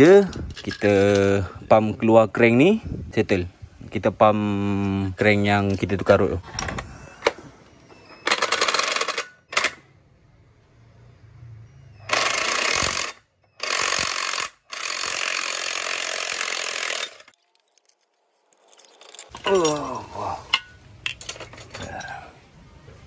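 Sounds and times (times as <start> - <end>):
workshop sounds: 0.0 - 2.0, 4.7 - 23.0
pneumatic power tool: 12.1 - 17.3.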